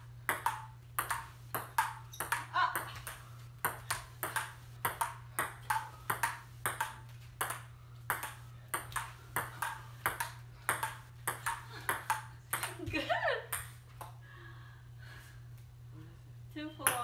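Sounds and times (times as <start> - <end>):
ping-pong ball clicking: 0.3 - 12.8.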